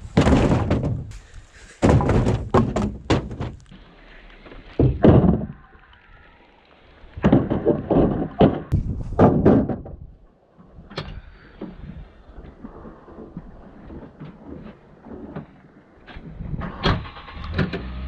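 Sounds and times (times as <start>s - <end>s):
wooden boards knocking: 0.1s - 1.2s, 1.8s - 3.7s, 4.8s - 5.6s, 7.2s - 10.1s.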